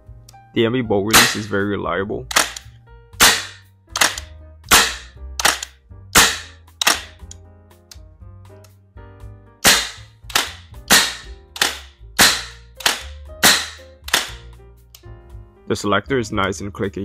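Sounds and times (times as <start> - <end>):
metallic rifle clacks: 1.1 - 1.6, 2.3 - 7.4, 9.6 - 14.4.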